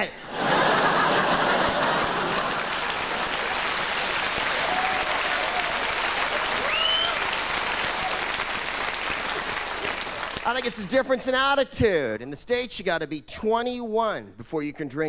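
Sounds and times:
audience applauding: 0.4 - 10.9.

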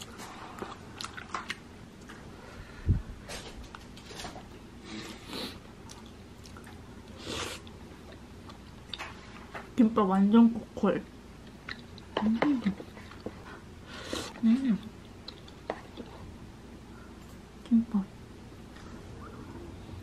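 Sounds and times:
person chewing food: 0.0 - 2.3, 3.7 - 9.4, 11.4 - 16.4.

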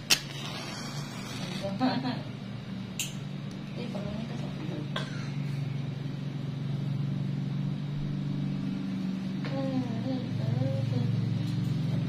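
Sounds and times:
sharp click: 3.0 - 3.2.

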